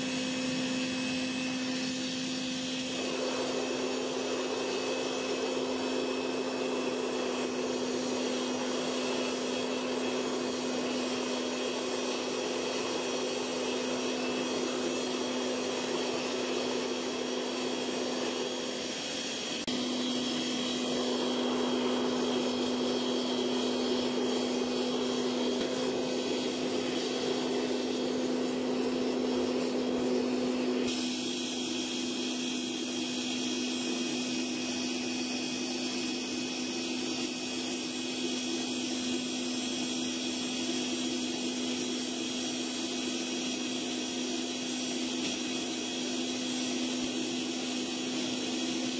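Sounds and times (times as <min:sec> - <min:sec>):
furnace burner hissing: 0:00.0 - 0:48.9.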